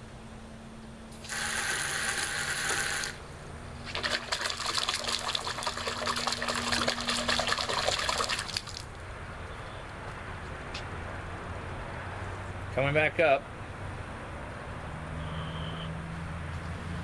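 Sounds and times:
water hissing: 1.2s - 3.2s
water splashing onto concrete: 3.8s - 9.0s.

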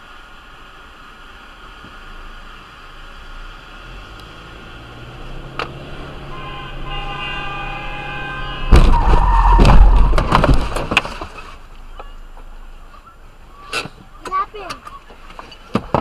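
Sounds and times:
car horn: 5.7s - 9.6s
car collision crunch: 6.7s - 12.2s
crashing and clattering: 8.7s - 11.6s.

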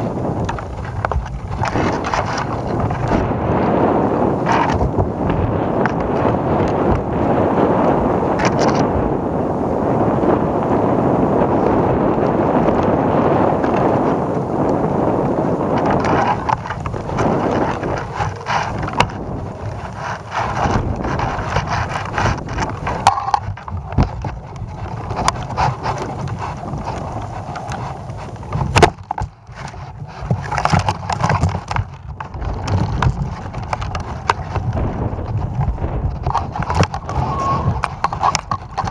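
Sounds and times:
wind buffeting microphone: 0.0s - 38.9s
knocks and rattles: 15.7s - 38.9s.

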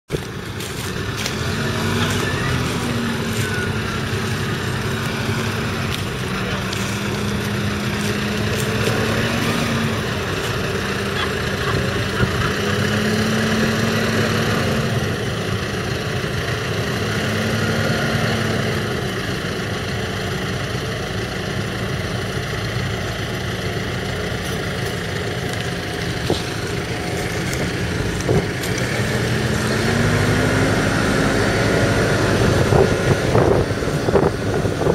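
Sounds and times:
diesel engine running: 0.0s - 34.9s.

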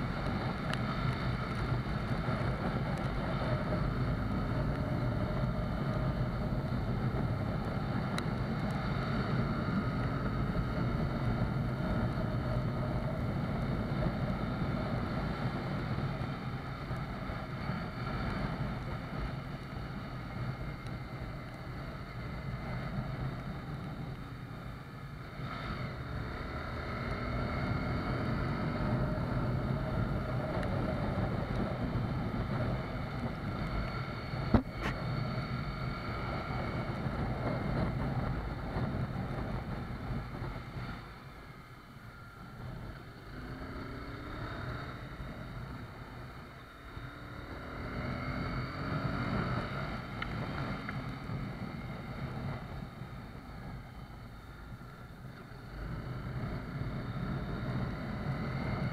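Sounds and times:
motorcycle engine running: 0.0s - 58.9s
wind rush on microphone: 27.2s - 41.3s.

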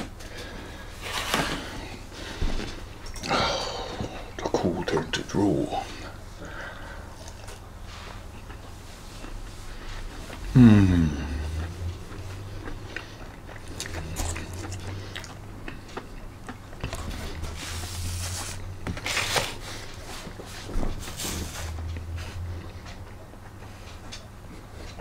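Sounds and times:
person chewing crunchy food: 6.0s - 20.5s.

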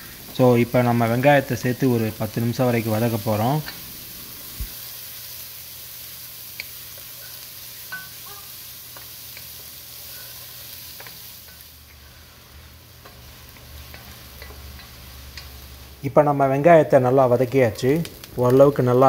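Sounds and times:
onions sizzling in hot oil: 0.0s - 19.0s
spatula scraping a pan: 8.9s - 12.3s.

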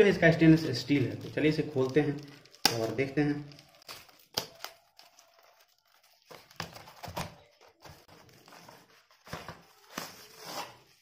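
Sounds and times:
plastic wrap crinkling: 0.0s - 11.0s
cardboard scraping: 6.1s - 11.0s.

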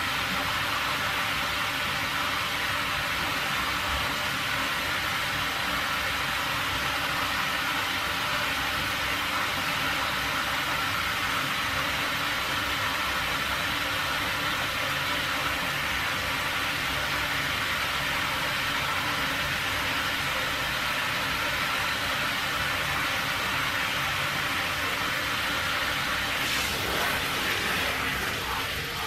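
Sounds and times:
steady hiss: 8.4s - 29.0s.

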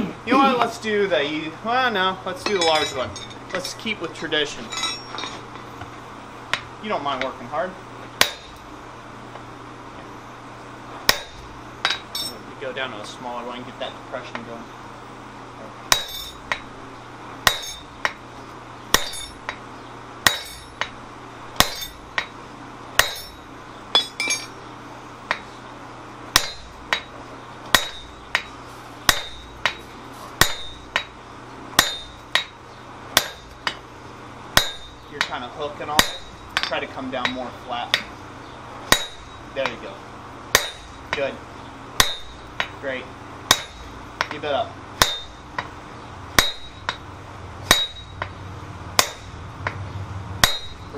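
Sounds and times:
sledgehammer striking metal punch: 8.2s - 8.5s, 11.1s - 12.4s, 15.9s - 16.6s, 17.5s - 17.9s, 18.9s - 19.5s, 20.2s - 21.0s, 21.6s - 22.3s, 23.0s - 23.4s, 26.4s - 27.1s, 27.8s - 28.5s, 29.1s - 29.8s, 30.4s - 31.1s, 31.8s - 32.5s, 33.2s - 33.5s, 34.6s - 35.0s, 35.9s - 36.8s, 38.9s - 39.4s, 40.5s - 41.0s, 42.0s - 42.7s, 43.5s - 43.9s, 45.0s - 45.4s, 46.4s - 47.0s, 47.6s - 48.4s, 49.0s - 49.8s, 50.4s - 50.9s.

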